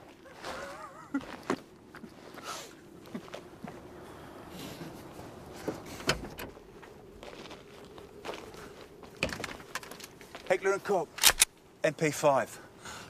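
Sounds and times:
footsteps on snow: 0.0 - 6.0, 6.6 - 9.2
steady outdoor hiss: 0.0 - 13.0.

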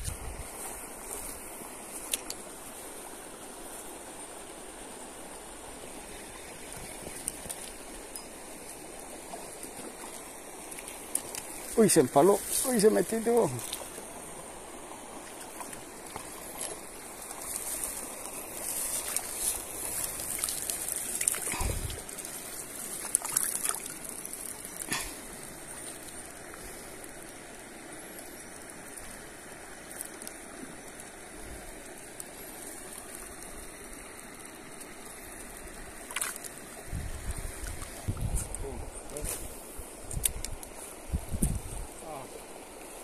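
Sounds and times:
stream water trickling: 0.0 - 43.0.

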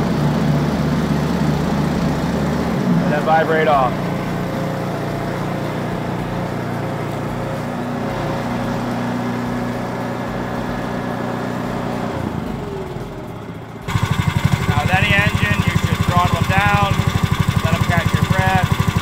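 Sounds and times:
roller engine running: 0.0 - 8.0, 12.1 - 19.0.

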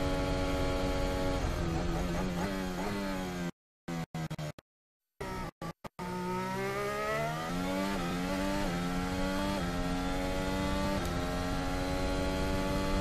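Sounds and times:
race car engine accelerating: 5.3 - 13.0.

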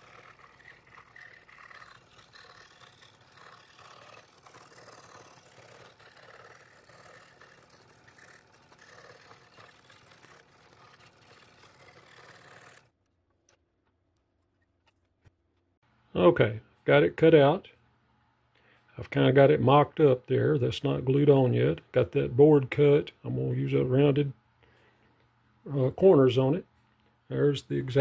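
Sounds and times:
scroll saw cutting wood: 0.0 - 13.0.

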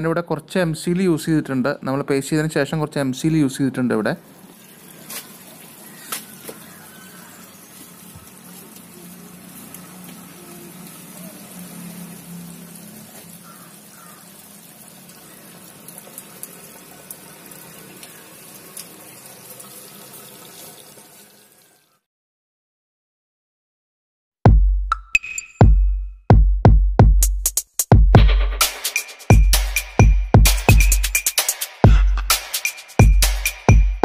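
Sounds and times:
water churning from aerator: 4.2 - 21.4.

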